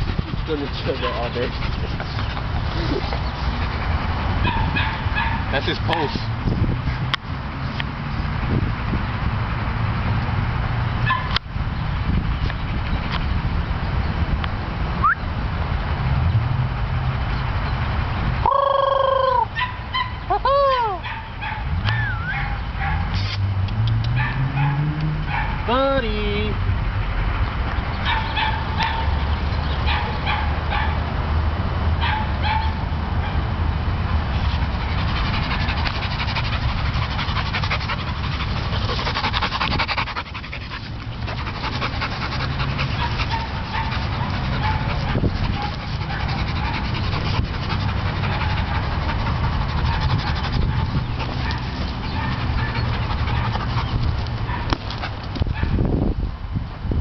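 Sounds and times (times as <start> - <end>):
steady low rumble: 0.0 - 5.5, 33.6 - 57.0
dog crying high-pitched: 18.5 - 21.1.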